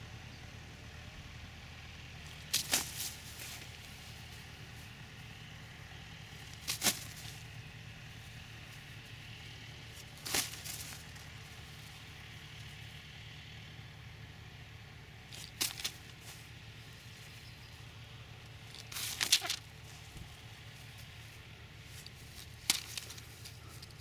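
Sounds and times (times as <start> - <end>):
steady low hum: 0.0 - 24.0
newspaper crinkling: 18.7 - 20.1.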